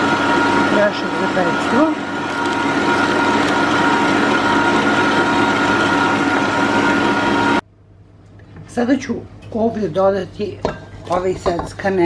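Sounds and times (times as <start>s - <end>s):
stand mixer whisking batter: 0.0s - 7.6s.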